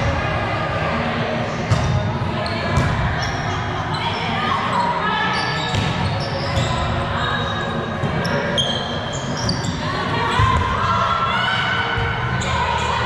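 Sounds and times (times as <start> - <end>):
sneakers squeaking on floor: 1.7 - 10.8.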